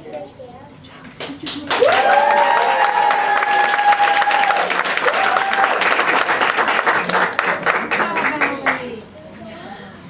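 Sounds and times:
audience clapping: 1.2 - 8.9
audience cheering: 1.7 - 7.7.

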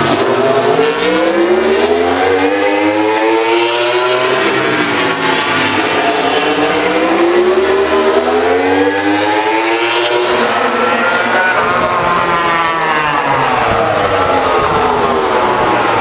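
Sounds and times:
racing motorcycle engine accelerating: 0.0 - 10.7.

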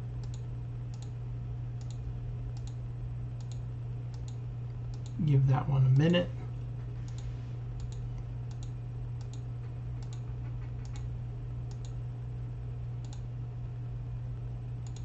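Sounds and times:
steady low hum: 0.0 - 15.0
computer mouse clicking: 0.2 - 1.2, 1.8 - 2.0, 2.6 - 2.8, 3.4 - 5.2, 7.1 - 11.1, 11.7 - 12.0, 13.0 - 13.2.

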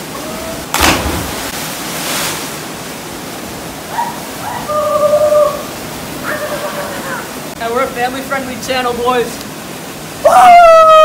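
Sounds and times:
churning water: 0.0 - 10.2
splash into water: 0.7 - 2.5
person whooping: 10.2 - 11.0.

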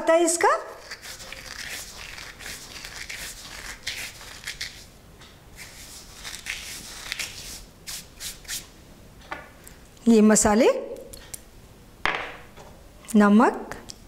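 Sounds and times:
seeds rubbed between palms: 0.8 - 4.8, 5.6 - 8.7.

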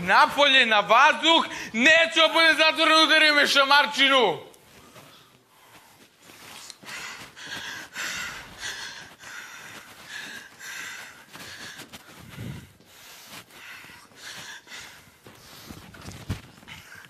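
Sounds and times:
man breathing hard: 4.8 - 16.0.

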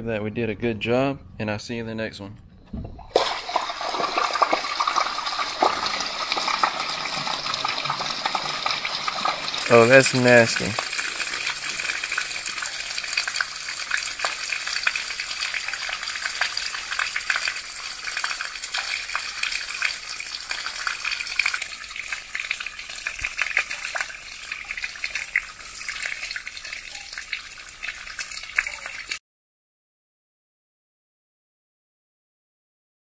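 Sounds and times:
wastewater splashing onto concrete: 3.1 - 29.2.

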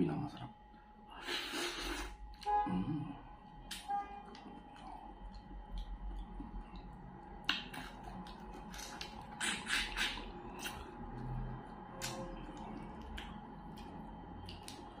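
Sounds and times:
wet mouth clicks and lip smacks: 6.8 - 10.9, 12.0 - 14.9.

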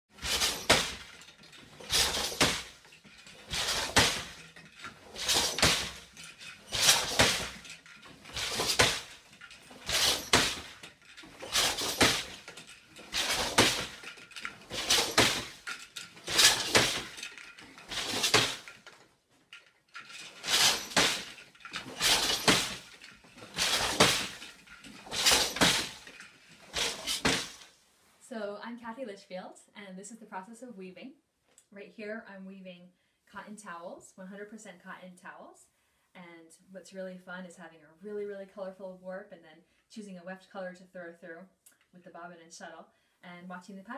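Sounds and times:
loom clacking: 0.1 - 27.7.

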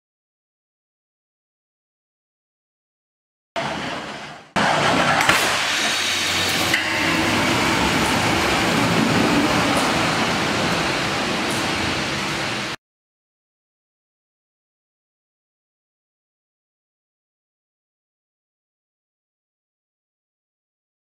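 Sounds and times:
steady rumbling noise: 3.6 - 12.8
loud car crash with sharp cracks: 4.6 - 9.9.

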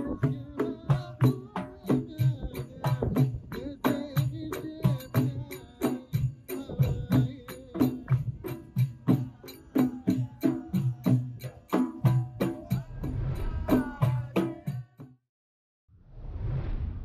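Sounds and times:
hand-struck frame drums: 0.0 - 15.1
men singing together: 0.0 - 15.2.

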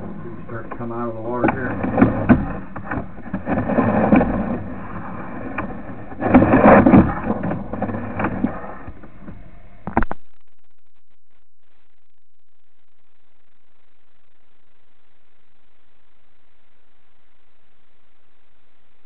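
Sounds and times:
cable rumbling and scraping in drain: 0.0 - 9.4.

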